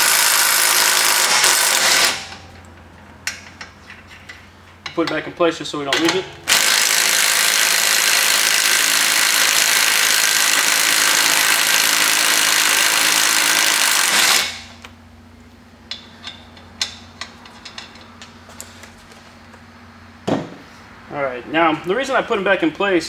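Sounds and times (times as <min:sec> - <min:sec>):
impact driver rattling: 0:00.0 - 0:02.4, 0:06.5 - 0:14.8.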